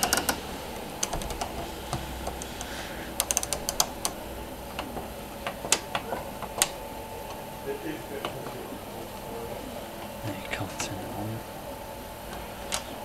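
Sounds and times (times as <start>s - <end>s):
plastic dial clicking: 2.3s - 4.2s.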